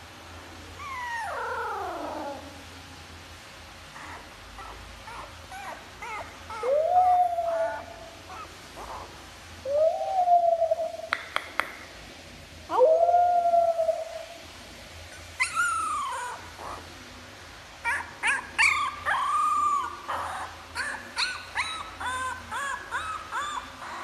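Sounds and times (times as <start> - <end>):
puppy howling: 0.8 - 2.6, 4.0 - 9.1, 15.4 - 16.8, 17.8 - 24.0
puppy yips and whimpers: 4.0 - 9.1, 15.1 - 16.9, 17.8 - 24.0.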